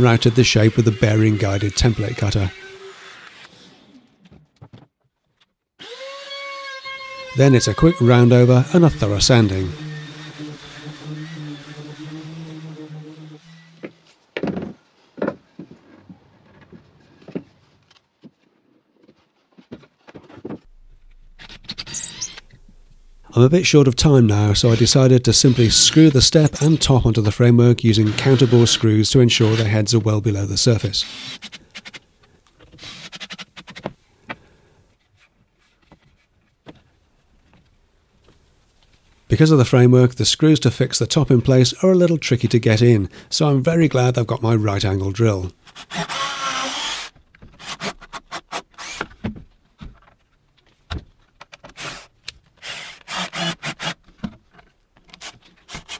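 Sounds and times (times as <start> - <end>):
orbital sander humming: 7.5 - 14.0.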